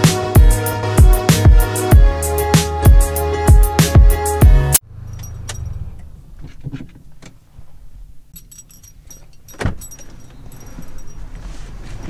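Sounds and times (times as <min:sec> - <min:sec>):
faint jingling: 0:04.9 - 0:05.9, 0:08.3 - 0:11.8.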